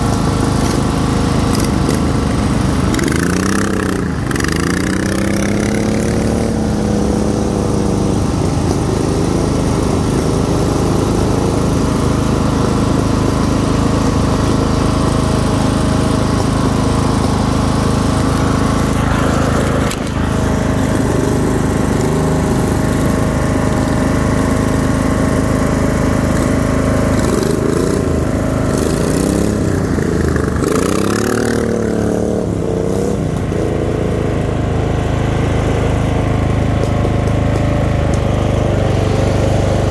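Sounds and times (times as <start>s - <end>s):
lawn tractor engine revving: 0.0s - 39.9s.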